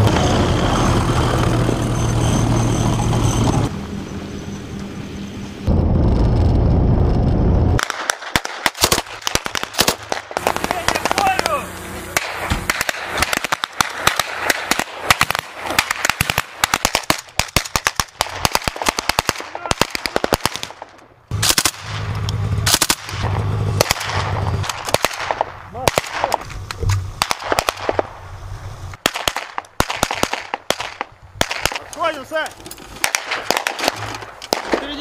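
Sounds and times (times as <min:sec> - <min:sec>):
automatic rifle fire: 0:07.8 - 0:11.6, 0:12.2 - 0:22.1, 0:22.7 - 0:26.4, 0:27.2 - 0:28.2, 0:29.0 - 0:32.2, 0:33.0 - 0:35.0.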